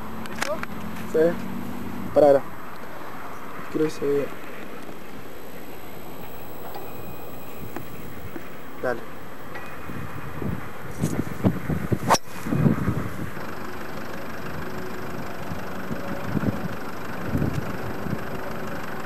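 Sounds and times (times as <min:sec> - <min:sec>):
wind rumbling on microphone: 0:04.3 - 0:13.4, 0:15.4 - 0:18.6.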